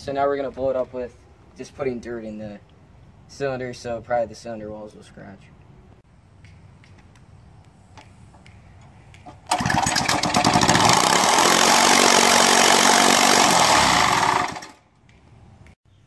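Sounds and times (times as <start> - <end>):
small engine running: 9.3 - 14.8.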